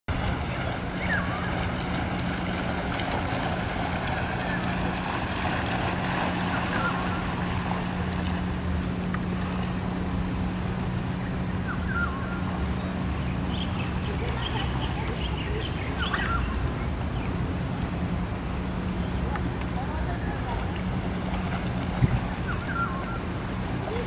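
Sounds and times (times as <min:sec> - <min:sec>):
moving water: 0:00.0 - 0:24.0
wind: 0:00.0 - 0:24.0
low hum: 0:00.1 - 0:24.0.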